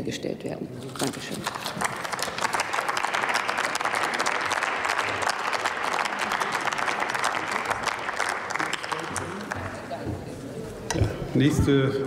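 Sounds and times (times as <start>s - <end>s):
crowd applauding: 1.4s - 10.2s.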